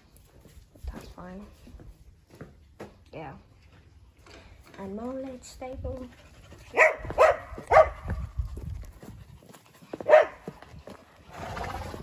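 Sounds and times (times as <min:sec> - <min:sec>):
dog barking: 0:06.7 - 0:08.2, 0:10.0 - 0:10.5.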